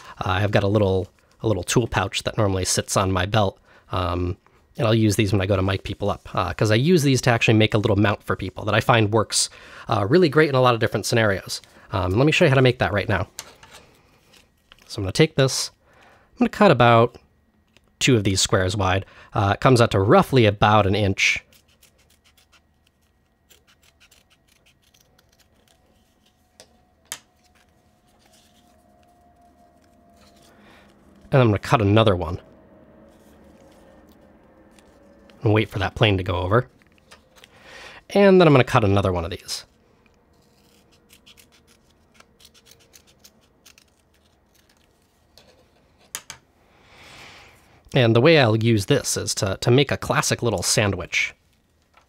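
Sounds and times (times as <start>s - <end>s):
shears snipping through tape: 21.5s - 26.4s, 40.3s - 45.1s
distant aircraft drone: 27.7s - 38.0s.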